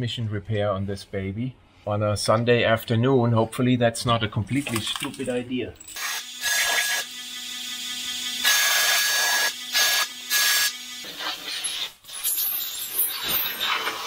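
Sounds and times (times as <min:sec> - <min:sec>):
pneumatic tool whine: 0:05.8 - 0:14.0
air hiss bursts: 0:08.4 - 0:12.2.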